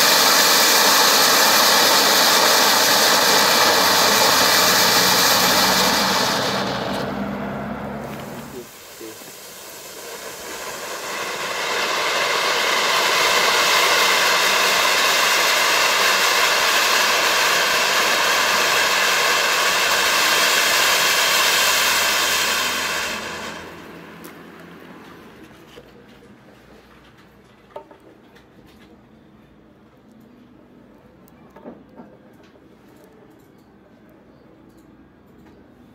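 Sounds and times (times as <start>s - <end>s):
firework fountains hissing: 0.0s - 25.4s.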